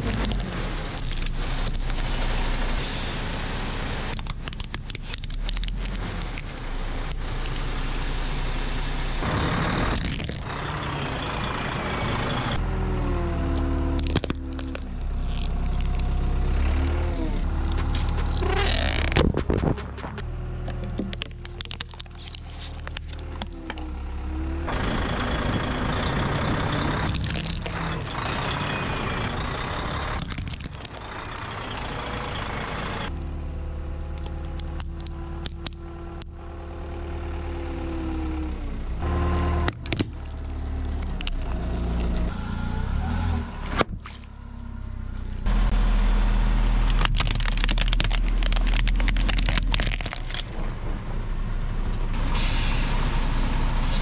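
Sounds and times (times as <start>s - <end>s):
plastic cracking under tyres: 0.0s - 2.2s, 4.1s - 7.7s, 9.9s - 10.5s, 13.5s - 16.3s, 20.6s - 23.8s, 27.1s - 28.3s, 30.2s - 31.5s, 34.2s - 36.3s, 39.6s - 42.3s, 46.9s - 50.6s
vehicle engines running: 0.0s - 54.0s.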